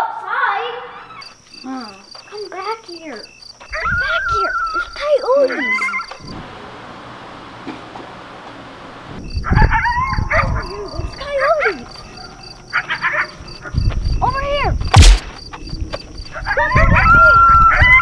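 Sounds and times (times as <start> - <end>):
coyotes howling and yipping: 3.6 - 6.2, 9.4 - 13.8, 16.2 - 18.0
loud sharp burst: 15.0 - 15.3.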